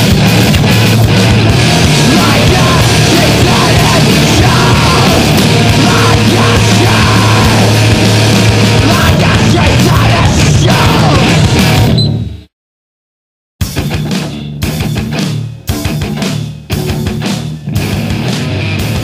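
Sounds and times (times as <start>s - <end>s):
distorted guitar: 0.0s - 12.5s, 13.6s - 19.0s
drums: 0.0s - 12.5s, 13.6s - 19.0s
noise rock music: 0.0s - 12.5s, 13.6s - 19.0s
person yelling vocals: 1.7s - 7.9s, 8.7s - 11.4s.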